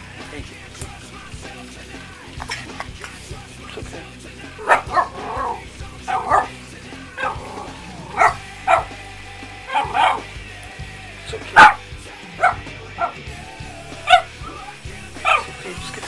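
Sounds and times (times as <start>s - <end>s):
dog barking: 4.6s - 6.6s, 7.2s - 9.0s, 9.7s - 10.3s, 11.6s - 13.2s, 14.1s - 14.3s, 15.2s - 15.6s.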